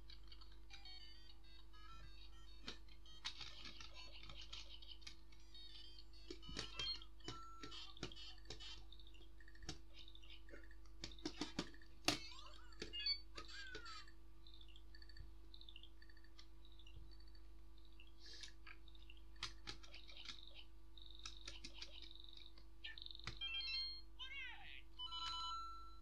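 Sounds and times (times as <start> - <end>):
toy speaker electronic bleeps and jingles: 0.8 - 3.2, 5.4 - 9.1, 12.2 - 14.8, 22.9 - 24.1, 25.0 - 26.0
sharp plastic clicks: 2.0 - 5.4, 6.2 - 17.5, 18.3 - 23.4.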